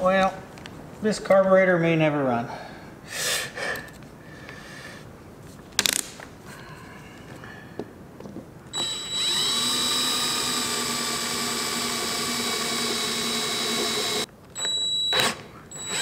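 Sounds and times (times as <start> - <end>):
cordless drill whining: 8.8 - 16.0.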